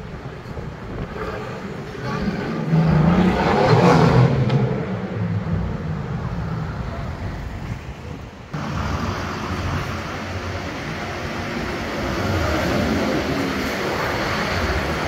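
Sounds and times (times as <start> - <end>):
sports car accelerating past: 2.6 - 6.3.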